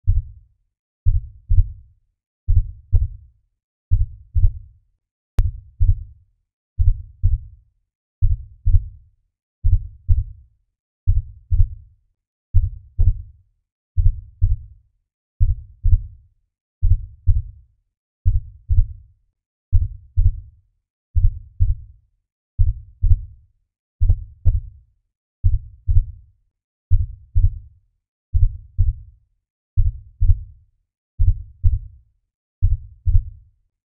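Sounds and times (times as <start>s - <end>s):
slow heartbeat: 0.1s - 0.3s, 1.1s - 1.8s, 2.5s - 3.2s, 3.9s - 4.6s, 5.4s - 6.1s, 6.8s - 7.5s, 8.2s - 9.0s, 9.6s - 10.4s, 11.1s - 11.8s, 12.6s - 13.3s, 14.0s - 14.7s, 15.4s - 16.2s, 16.8s - 17.6s, 18.3s - 19.0s, 19.7s - 20.5s, 21.2s - 21.8s, 22.6s - 23.3s, 24.0s - 24.7s, 25.4s - 26.2s, 26.9s - 27.7s, 28.3s - 29.1s, 29.8s - 30.5s, 31.2s - 31.9s, 32.6s - 33.4s.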